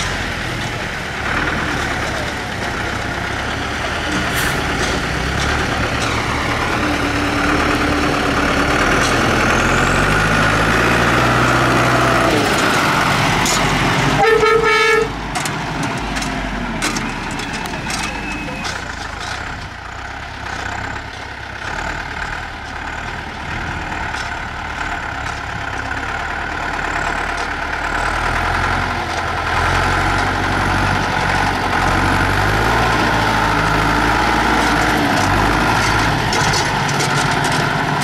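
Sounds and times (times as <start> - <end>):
tractor diesel engine labouring: 0.0 - 38.0
vehicle horn toot: 14.2 - 15.2.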